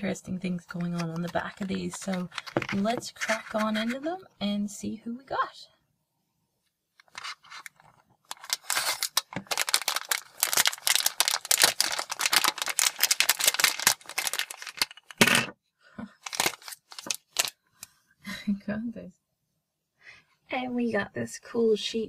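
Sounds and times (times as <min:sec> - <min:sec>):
plastic bag crinkling: 0:00.9 - 0:03.8, 0:07.0 - 0:15.4, 0:16.2 - 0:17.6
toy dropping on wooden shelf: 0:15.2 - 0:15.5.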